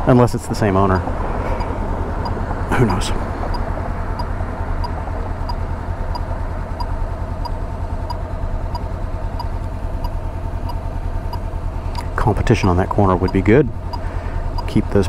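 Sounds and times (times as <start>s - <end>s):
motorcycle engine running: 0.7s - 15.0s
faint regular tick: 6.2s - 12.1s, 13.3s - 14.0s.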